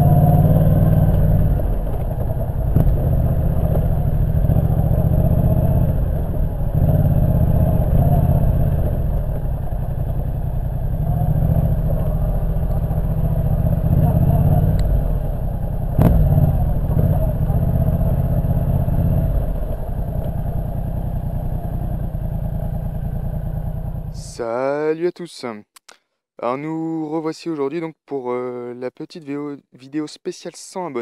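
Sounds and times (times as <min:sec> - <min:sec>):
motorcycle engine revving: 0:00.0 - 0:24.4.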